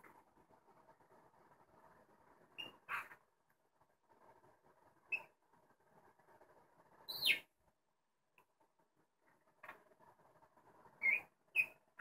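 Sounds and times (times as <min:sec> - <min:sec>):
budgerigars chirping: 0:07.1 - 0:07.4.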